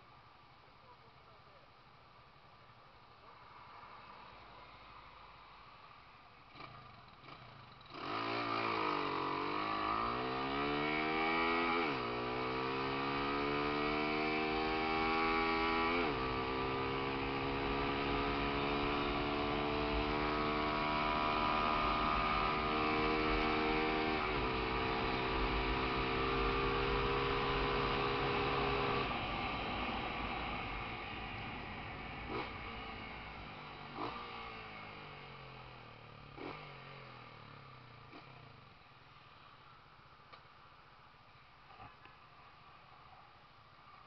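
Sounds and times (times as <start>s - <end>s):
motorcycle engine accelerating: 6.4s - 39.1s.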